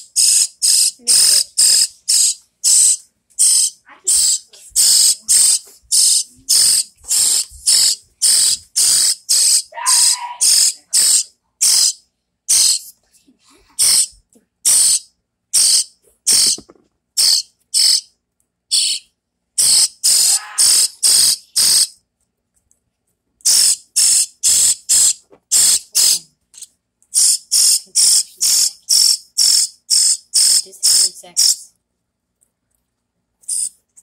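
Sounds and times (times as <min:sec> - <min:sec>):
nestling bird begging cheeps: 0:00.2 - 0:12.8, 0:19.6 - 0:21.9.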